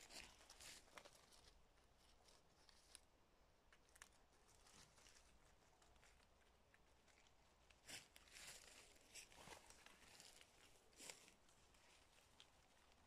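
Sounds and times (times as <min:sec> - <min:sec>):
footsteps through dry leaves: 0:07.8 - 0:11.4.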